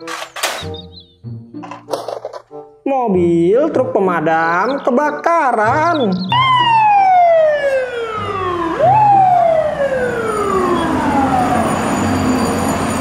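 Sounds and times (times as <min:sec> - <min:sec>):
fire truck siren wailing: 0:05.7 - 0:13.0.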